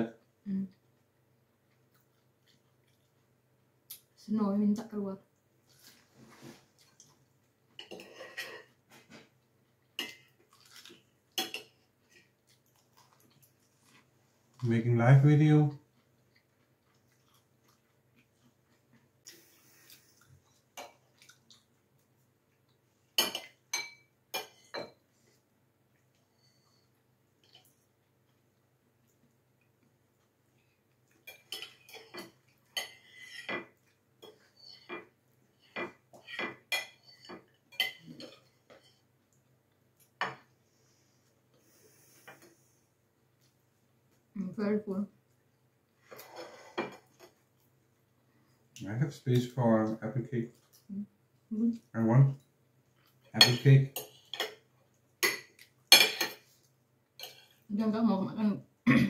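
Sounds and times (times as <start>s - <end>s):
cutlery clinking against a plate: 11.4s - 11.8s, 23.2s - 25.0s, 31.3s - 35.1s, 35.7s - 39.0s, 53.4s - 54.6s, 55.2s - 56.5s, 57.2s - 57.6s
dishes clattering: 23.2s - 25.0s, 55.2s - 56.5s
plate and cutlery clinking: 53.4s - 54.6s, 55.2s - 56.5s.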